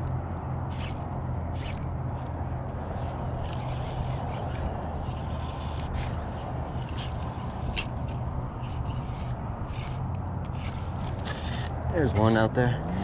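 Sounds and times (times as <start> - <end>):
fly line scraping strips: 0.0 - 13.0
steady low hum: 0.0 - 13.0.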